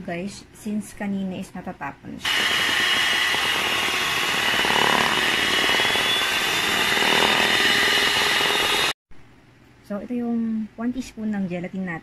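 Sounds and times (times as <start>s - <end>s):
electric hand mixer whining: 2.2s - 9.0s
beaters churning thick mixture: 2.3s - 9.0s.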